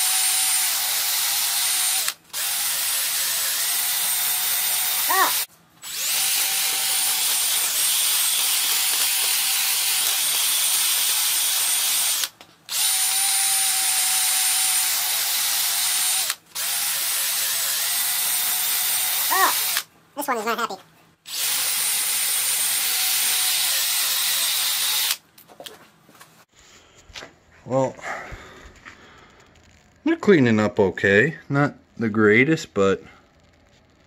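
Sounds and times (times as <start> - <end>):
cordless drill brush scrubbing metal: 0.0 - 19.8.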